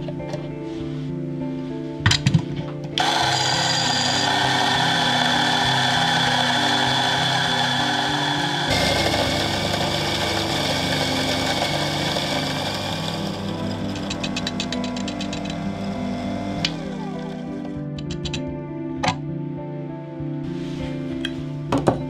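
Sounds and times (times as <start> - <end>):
coffee grinder whirring: 3.0 - 17.8.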